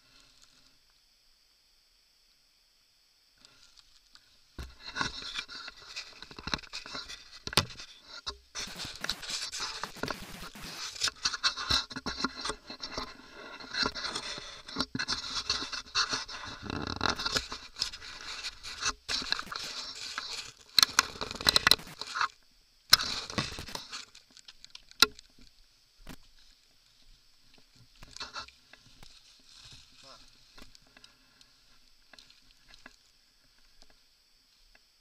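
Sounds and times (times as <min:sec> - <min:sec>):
scrub scraping against camera: 0:04.7 - 0:22.3, 0:22.9 - 0:24.2
sharp clicks: 0:20.7 - 0:22.2.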